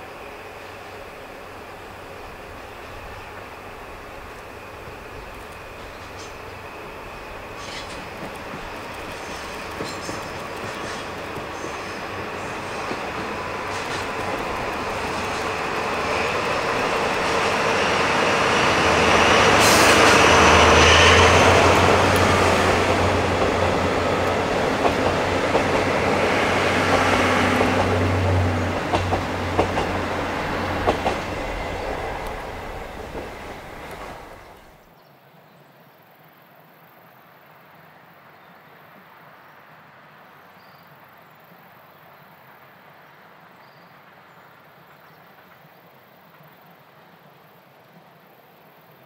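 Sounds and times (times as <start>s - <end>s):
locomotive engine drone: 0.0s - 34.8s
train wheels clicking over rail joints: 2.5s - 34.7s.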